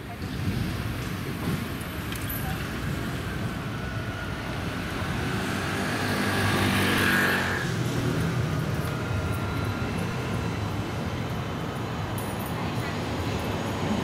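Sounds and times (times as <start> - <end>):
street traffic: 0.0 - 14.0
tram approaching with low hum: 0.0 - 14.0
vehicle passing: 3.8 - 10.9.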